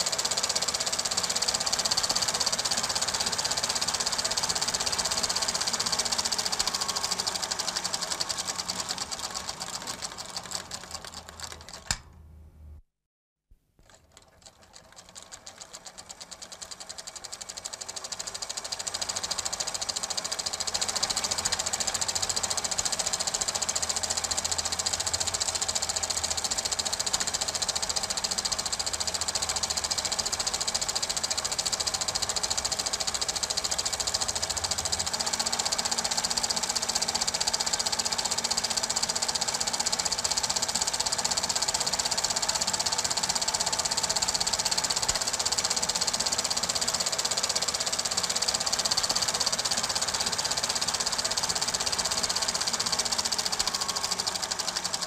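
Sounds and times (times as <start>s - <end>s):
film projector clattering: 0.0s - 12.1s, 13.8s - 55.0s.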